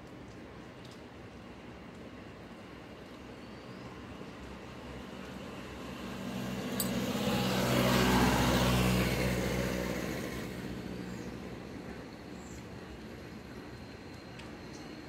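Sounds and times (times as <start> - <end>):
vehicle passing by: 5.1 - 11.6.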